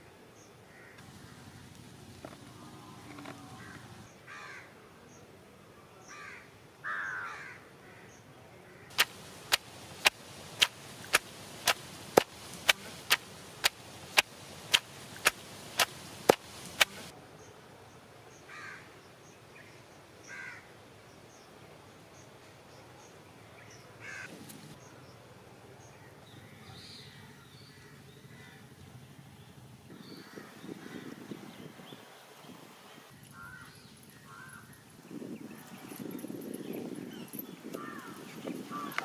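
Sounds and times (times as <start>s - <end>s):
crows cawing: 0.7s - 4.7s, 6.1s - 10.1s, 18.5s - 18.9s, 20.3s - 20.7s, 24.0s - 24.3s, 27.8s - 28.6s, 33.3s - 34.6s, 37.8s - 39.0s.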